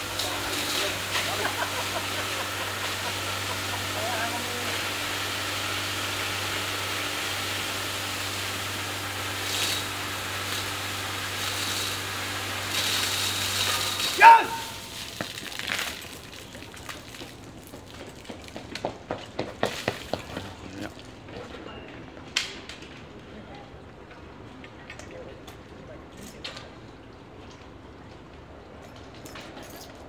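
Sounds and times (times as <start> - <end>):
fire hose jet of water: 0.0 - 18.4, 19.5 - 21.0
person shouting: 14.1 - 14.9.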